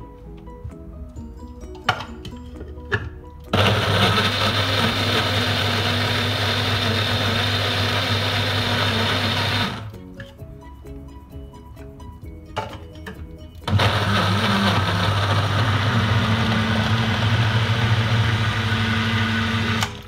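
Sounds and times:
electric blender motor running: 3.5s - 9.9s, 13.7s - 20.0s.

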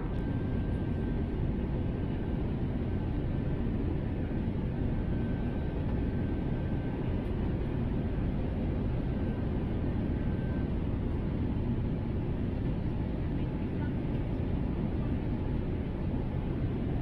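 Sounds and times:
faint high whine: 0.0s - 14.2s.

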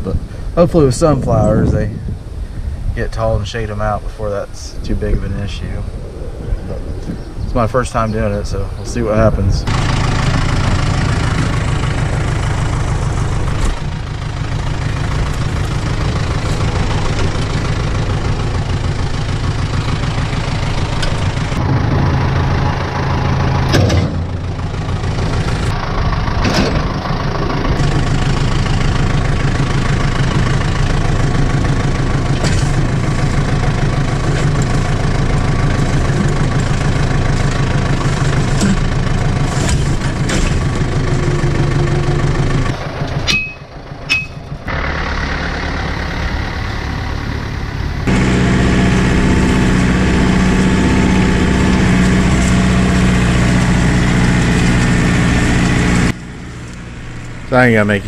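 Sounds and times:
tractor engine idling: 0.0s - 58.0s
sharp metal knocks: 43.2s - 44.5s.

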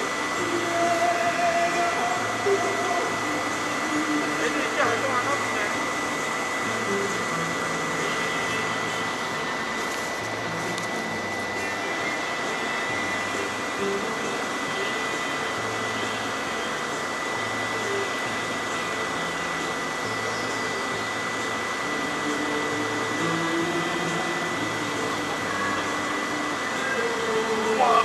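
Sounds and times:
thin high whistle: 20.0s - 21.0s.

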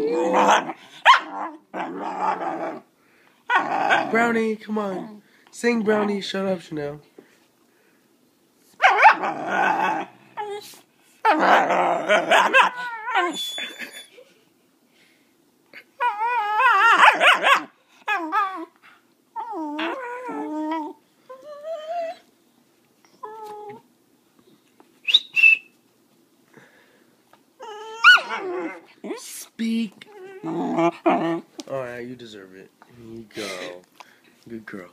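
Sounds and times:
puppy howling: 0.0s - 2.8s, 3.5s - 4.2s, 8.8s - 10.6s, 11.2s - 14.0s, 16.0s - 18.8s, 19.4s - 22.2s, 27.6s - 29.2s, 30.1s - 31.5s
puppy barking: 0.4s - 1.6s, 8.8s - 9.3s, 16.9s - 17.8s, 28.0s - 28.8s
puppy whining: 3.5s - 4.2s, 8.8s - 14.4s, 15.7s - 22.3s, 23.0s - 23.9s, 27.6s - 29.3s, 30.0s - 31.5s.

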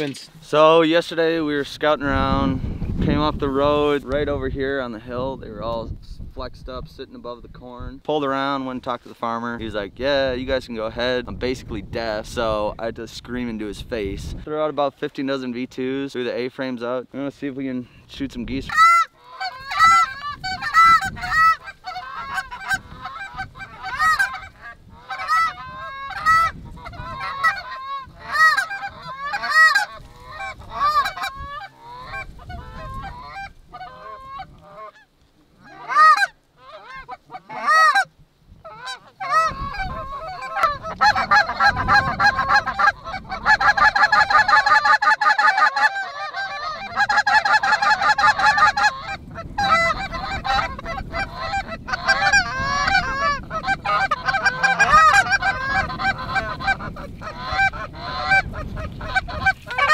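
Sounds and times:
geese honking: 18.6s - 59.9s.

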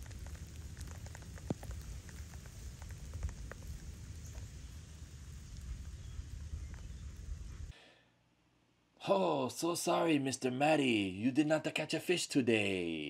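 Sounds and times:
rain falling on grass: 0.0s - 7.7s.

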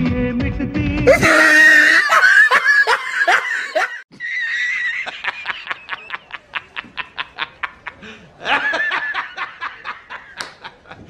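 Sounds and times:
high-pitched squealing laughter: 1.1s - 8.0s.

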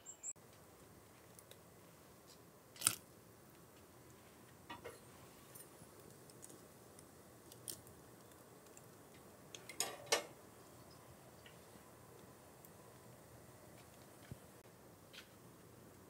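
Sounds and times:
kitchen clicks and knocks: 9.6s - 10.3s.

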